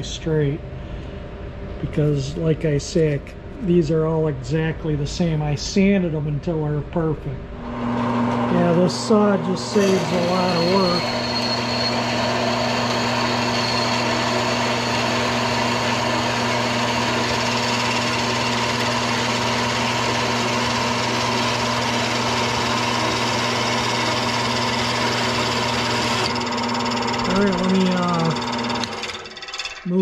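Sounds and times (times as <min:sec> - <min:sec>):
band saw cutting metal rod: 0:07.7 - 0:30.0.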